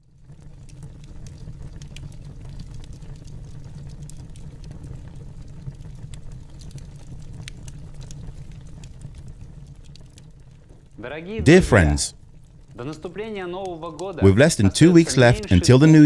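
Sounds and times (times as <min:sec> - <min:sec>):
log fire crackling: 0:00.0 - 0:16.0.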